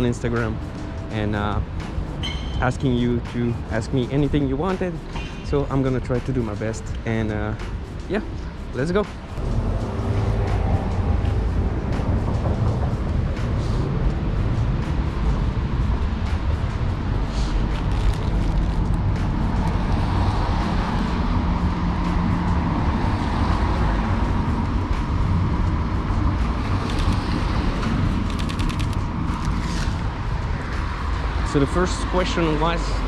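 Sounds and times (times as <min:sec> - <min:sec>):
cars on a wet road: 0:09.4 - 0:33.0.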